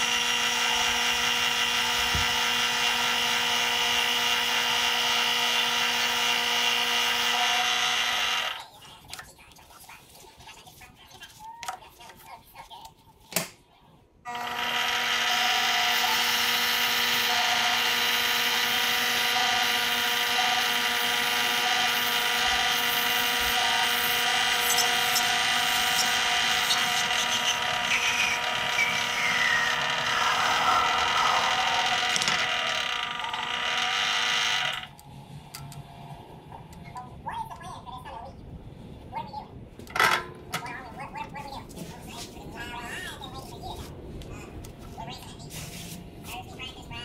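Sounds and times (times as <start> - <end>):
lathe motor and gear whine: 0.0 - 8.6, 14.3 - 35.0
tool cutting metal: 0.0 - 8.6, 14.3 - 35.0
tone sliding down in pitch: 27.9 - 32.6.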